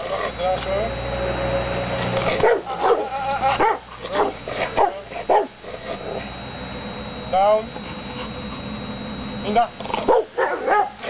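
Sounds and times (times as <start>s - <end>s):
dog barking deeply: 10.0s - 11.0s.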